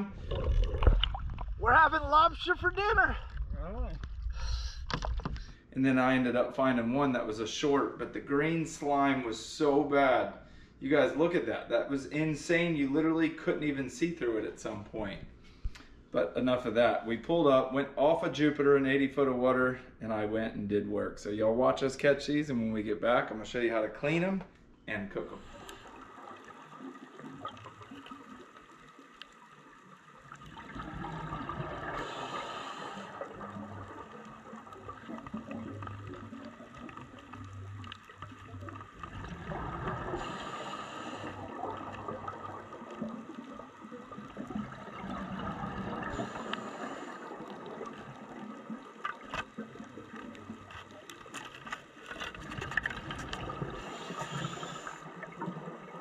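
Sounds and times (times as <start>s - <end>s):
regulator bubbles rushing: 0.0s - 4.4s, 25.4s - 51.1s, 52.4s - 56.0s
underwater watery hiss: 25.4s - 28.1s, 30.6s - 34.1s, 38.7s - 43.4s, 44.8s - 48.4s, 53.4s - 55.4s.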